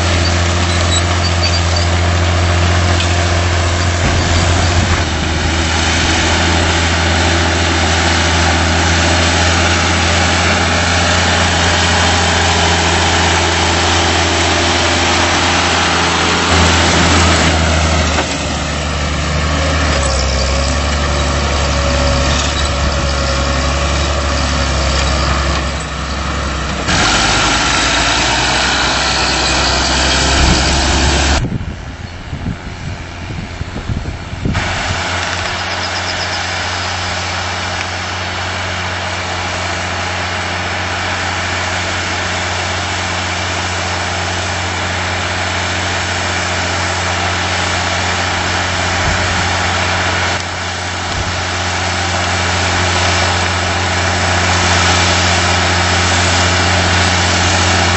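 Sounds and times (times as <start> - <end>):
tractor diesel engine droning: 0.0 - 57.9.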